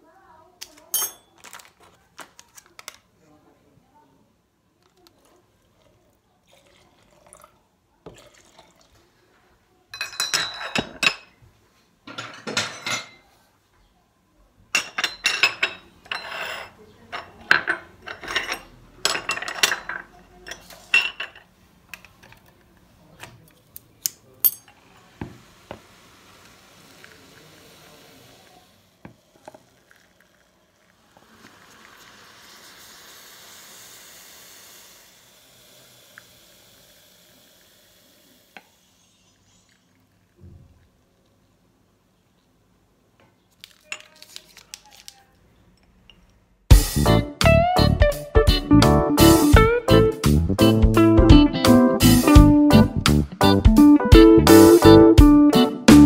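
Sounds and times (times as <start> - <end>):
porcelain cups clinking: 0.8 - 1.7, 10.0 - 11.4, 14.8 - 21.5, 29.1 - 30.9
coffee pouring hiss: 4.8 - 9.3, 24.7 - 41.6.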